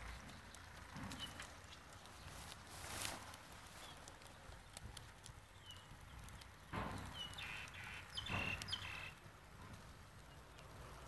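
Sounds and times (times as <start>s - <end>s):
faint outdoor background: 0.0s - 11.0s
bird chirps: 5.4s - 9.2s.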